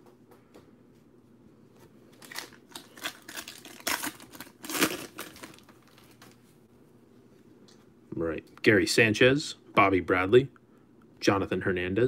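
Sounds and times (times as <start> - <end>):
wrapper tearing and crinkling: 2.2 - 6.4.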